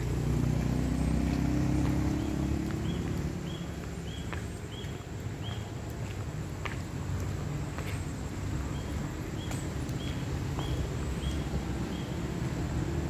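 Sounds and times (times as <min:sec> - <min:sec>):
vehicle engine passing by: 0:00.0 - 0:04.4
bird chirping: 0:01.0 - 0:05.7, 0:08.7 - 0:12.3.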